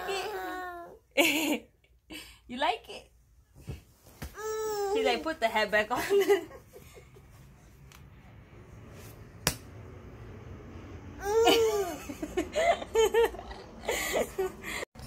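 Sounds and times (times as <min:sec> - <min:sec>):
baby laughing and giggling: 0:11.2 - 0:14.0.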